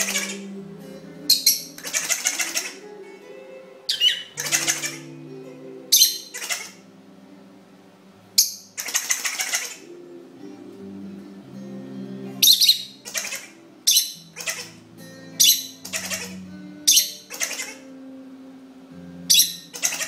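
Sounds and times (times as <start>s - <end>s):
electronic toy laughing sound: 1.8s - 2.9s, 4.4s - 5.1s, 6.0s - 6.8s, 8.8s - 9.9s, 12.5s - 13.6s, 14.3s - 14.8s, 15.4s - 16.4s, 17.0s - 17.9s, 19.3s - 20.0s
bird shrill chirps: 3.9s - 5.0s, 12.4s - 14.7s, 15.4s - 17.8s.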